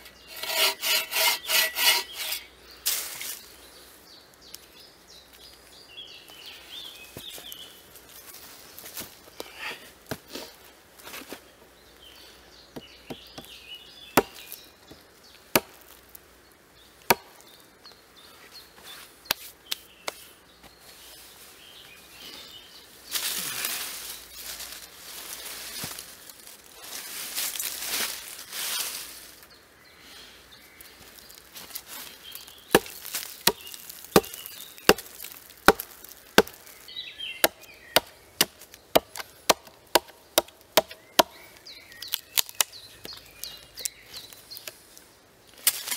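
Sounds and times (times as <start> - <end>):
hatchet chopping log: 14.2 - 14.5, 15.5 - 15.9, 17.1 - 17.4, 32.7 - 36.6, 37.4 - 41.4
rustling noise: 23.0 - 29.5.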